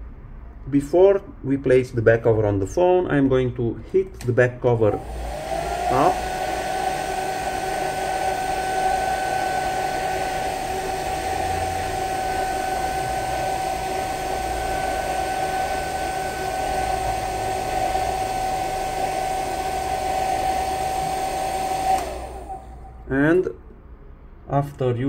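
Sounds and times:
hair dryer blowing: 4.9s - 23.0s.

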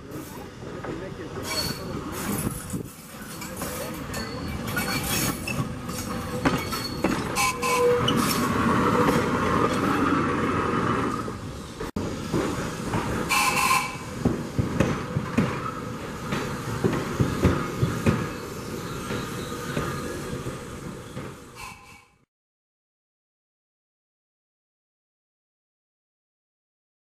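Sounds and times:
trolley wheels rolling on rails: 0.1s - 22.1s
wheels clicking over rail joints: 0.3s - 18.4s.

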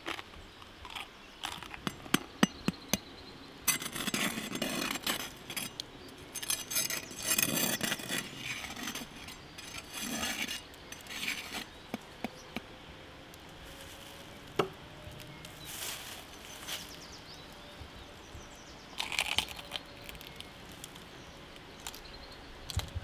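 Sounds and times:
knife crunching roasted skin: 19.0s - 20.5s.

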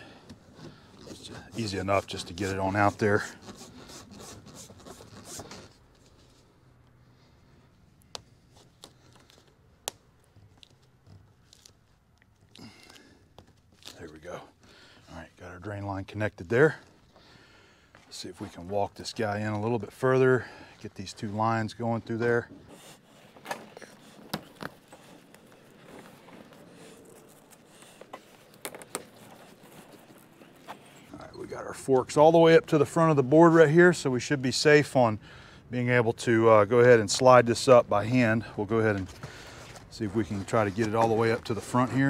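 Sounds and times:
plastic hose rubbing and crinkling: 0.4s - 6.6s, 20.8s - 32.2s, 37.1s - 42.0s
pipes scraping through plastic sleeve: 1.0s - 5.8s.

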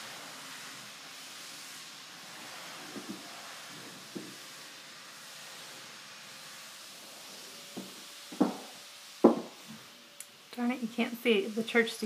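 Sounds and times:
steady hiss: 0.0s - 12.0s
footsteps on bare floor: 7.7s - 9.8s.

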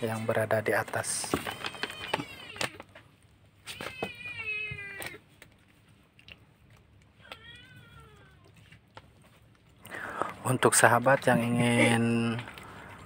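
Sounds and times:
cat meowing: 1.4s - 2.9s, 3.7s - 5.2s, 7.2s - 8.6s.

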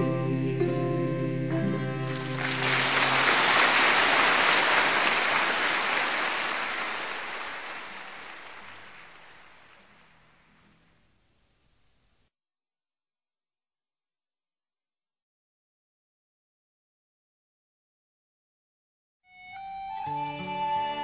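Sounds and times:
ocean surf: 2.1s - 9.8s.

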